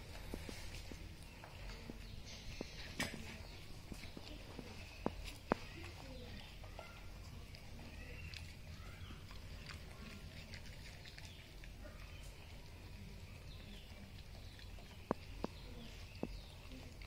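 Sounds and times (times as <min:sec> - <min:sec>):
dog chewing bread: 0:00.0 - 0:17.0.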